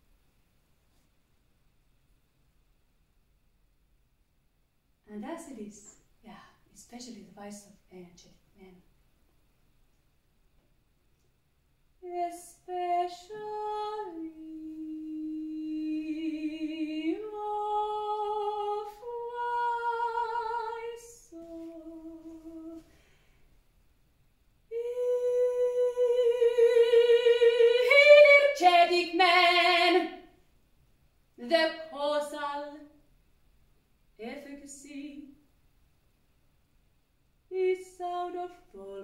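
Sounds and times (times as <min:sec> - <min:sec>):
woman singing unaccompanied: 0:12.0 - 0:22.9, 0:24.7 - 0:30.3, 0:31.4 - 0:32.9, 0:34.2 - 0:35.4, 0:37.5 - 0:39.0.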